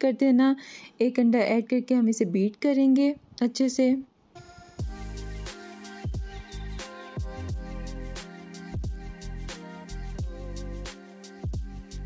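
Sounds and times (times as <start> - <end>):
deep kick drums: 4.8 - 5.2, 6.1 - 6.5, 7.2 - 7.7, 8.8 - 9.2, 10.2 - 10.4, 11.5 - 11.8.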